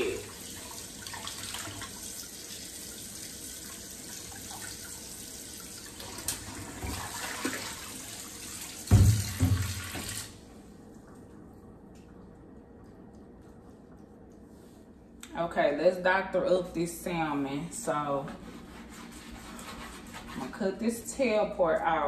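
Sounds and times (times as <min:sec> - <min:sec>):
faucet water splashing: 0:00.0 - 0:10.4.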